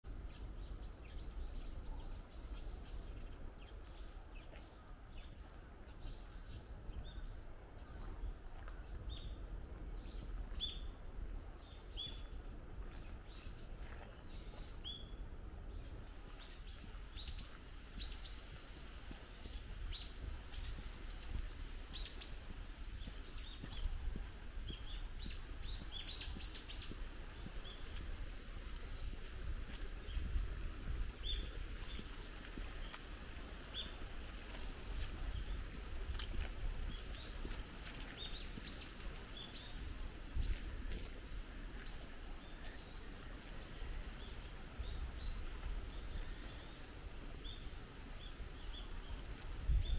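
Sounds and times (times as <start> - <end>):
wind rumble on microphone: 0.0 - 49.9
birds chirping: 16.3 - 49.9.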